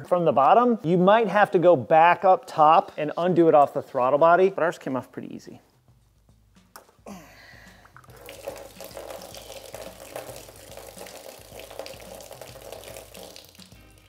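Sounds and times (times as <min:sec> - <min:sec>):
liquid trickling into pan: 0:08.1 - 0:14.0.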